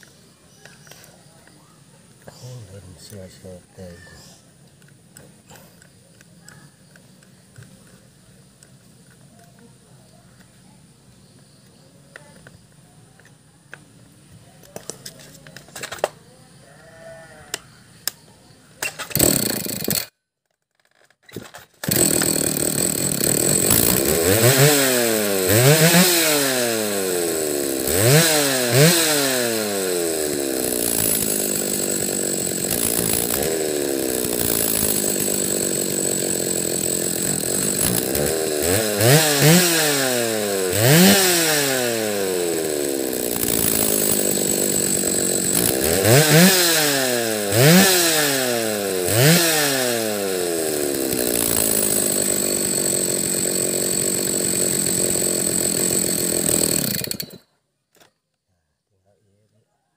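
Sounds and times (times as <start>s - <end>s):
chainsaw engine revving: 18.8s - 20.1s, 21.4s - 57.5s.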